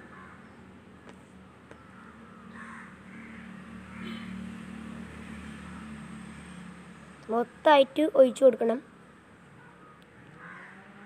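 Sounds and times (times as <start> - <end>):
faint crow cawing: 0.0 - 0.6, 1.7 - 4.6, 9.6 - 11.0.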